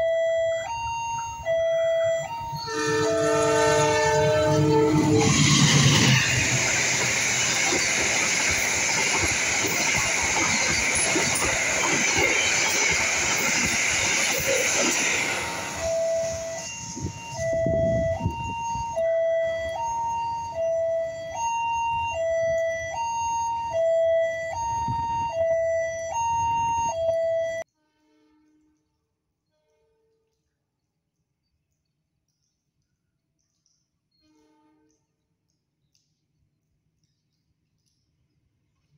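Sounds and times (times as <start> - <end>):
level crossing alarm two-tone: 0.0 - 27.7
train cars rushing past: 2.4 - 18.9.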